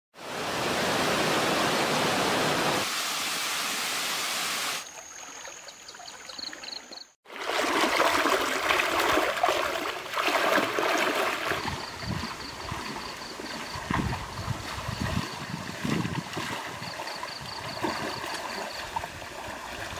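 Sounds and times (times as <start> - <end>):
rushing stream water: 0.2 - 19.9
legs wading through shallow river: 4.8 - 19.9.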